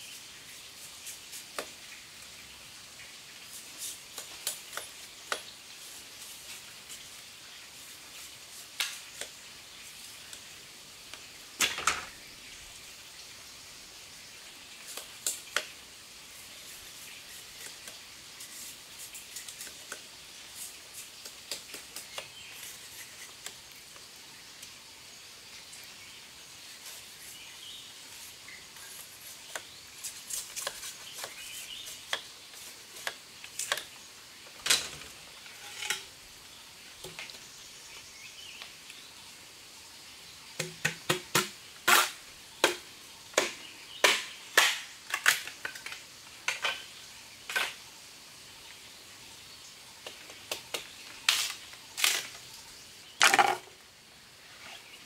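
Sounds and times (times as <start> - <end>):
faint steady hiss: 0.0 - 55.0
knife splitting bamboo: 16.5 - 23.6, 28.8 - 34.0, 40.6 - 45.9.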